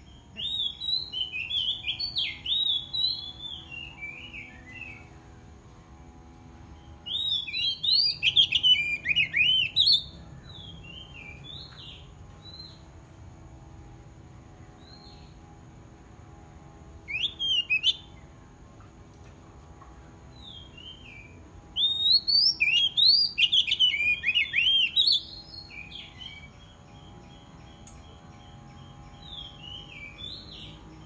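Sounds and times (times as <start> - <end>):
bird singing whistled phrases: 0.4 - 5.1, 7.0 - 11.7, 17.1 - 18.1, 20.4 - 26.5.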